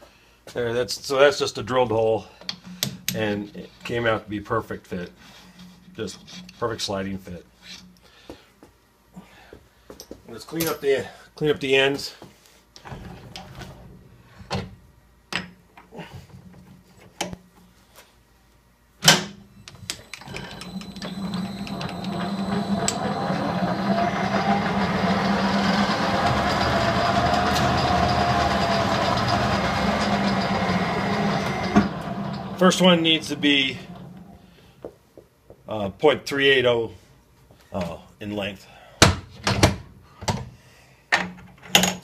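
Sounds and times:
lathe motor humming: 0:20.0 - 0:34.4.

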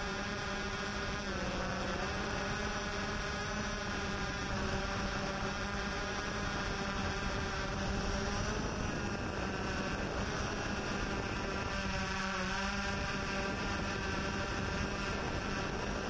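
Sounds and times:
drone propellers buzzing: 0:00.0 - 0:16.0.

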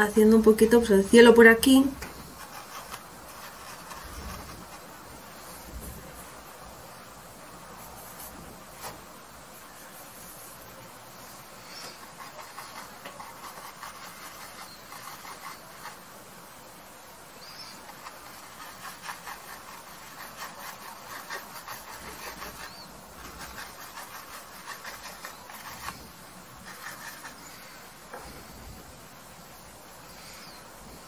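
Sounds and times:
paintbrush scratching on canvas: 0:01.8 - 0:06.4, 0:07.8 - 0:16.2, 0:17.4 - 0:28.6.

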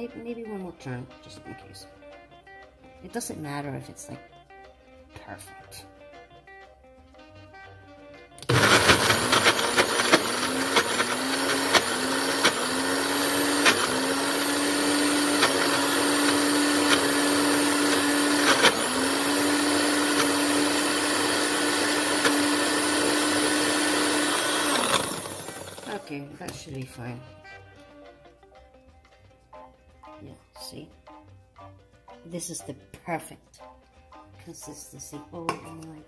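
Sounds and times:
blender motor running: 0:08.4 - 0:26.2.

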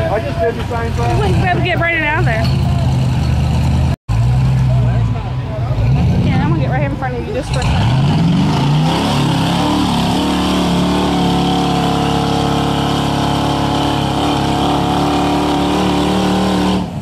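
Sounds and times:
engine running at high revs: 0:05.7 - 0:17.0.

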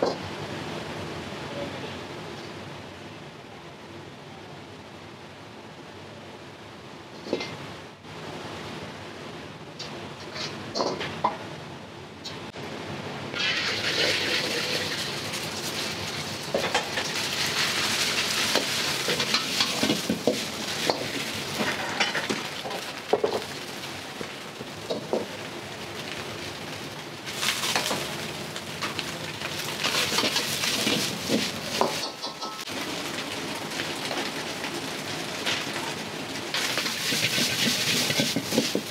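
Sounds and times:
food sizzling in a wok: 0:13.3 - 0:38.9
metal utensil scraping a pan: 0:16.6 - 0:22.5, 0:29.8 - 0:32.7, 0:36.6 - 0:38.9.

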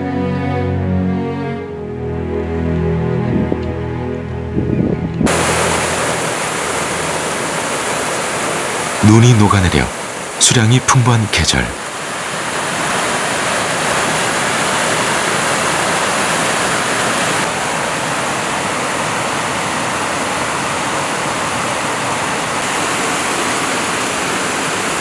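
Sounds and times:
waterfall rushing over rocks: 0:05.3 - 0:25.0.

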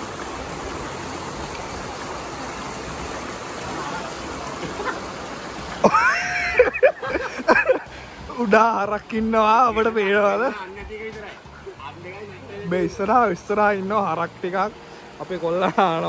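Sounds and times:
splashing from wading: 0:00.0 - 0:08.5
flowing river water: 0:00.0 - 0:16.0.

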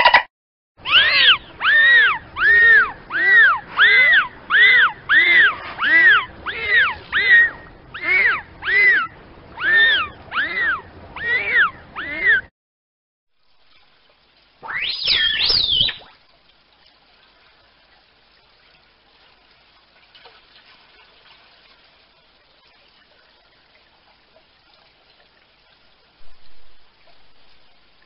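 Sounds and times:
faint water noise: 0:00.8 - 0:12.5, 0:13.3 - 0:28.0
dolphin whistles: 0:00.9 - 0:12.4, 0:14.6 - 0:16.1.

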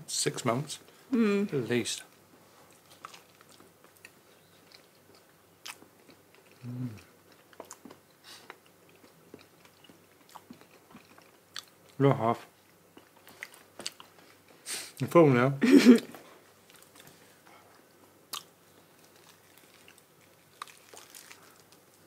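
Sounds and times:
person humming: 0:01.1 - 0:01.6, 0:06.6 - 0:07.1
chewing and mouth clicks: 0:02.7 - 0:06.6, 0:07.3 - 0:12.0, 0:16.7 - 0:21.8.

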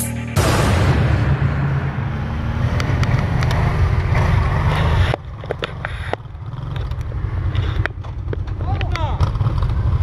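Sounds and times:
atv engine under load: 0:02.7 - 0:10.0.

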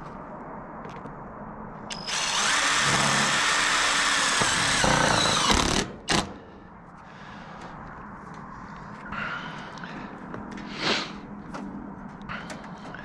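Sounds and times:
cordless drill driving screw into metal: 0:01.9 - 0:06.3.

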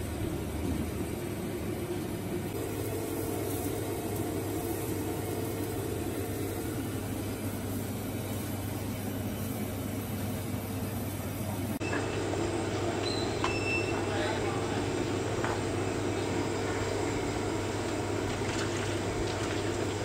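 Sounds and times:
gas burner rushing: 0:00.0 - 0:20.0.

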